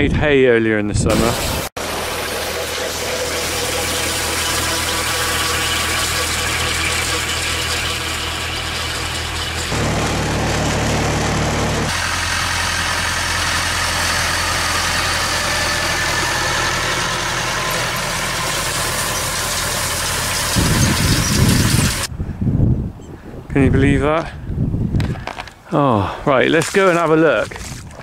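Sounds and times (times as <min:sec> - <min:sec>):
tractor diesel engine running: 0:01.8 - 0:22.1
loud rumbling noise: 0:09.7 - 0:22.2.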